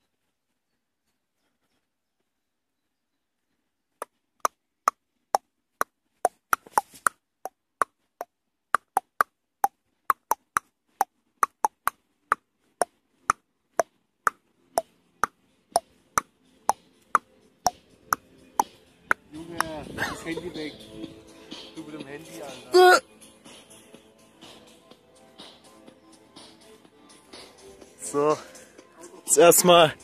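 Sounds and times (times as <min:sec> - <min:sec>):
footsteps on dirt path: 0:06.0 - 0:07.1.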